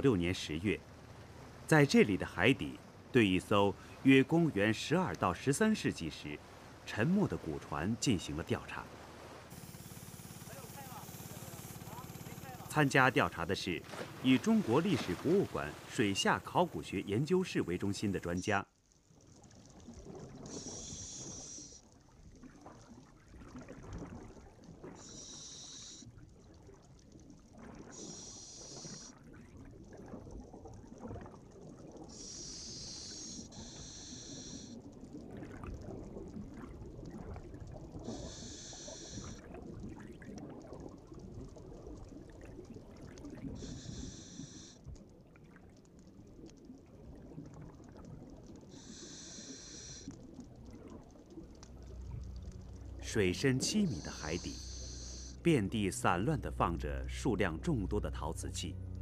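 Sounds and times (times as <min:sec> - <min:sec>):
low rumble of water and bubbles: 0:00.0 - 0:59.0
diver breathing through regulator: 0:20.5 - 0:21.8, 0:25.0 - 0:26.1, 0:27.9 - 0:29.2, 0:32.1 - 0:34.8, 0:38.0 - 0:39.4, 0:43.6 - 0:44.8, 0:48.7 - 0:50.2, 0:53.8 - 0:55.4.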